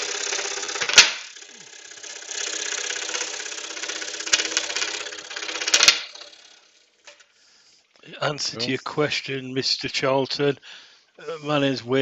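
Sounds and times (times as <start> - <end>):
scroll saw cutting wood: 0.0 - 6.6.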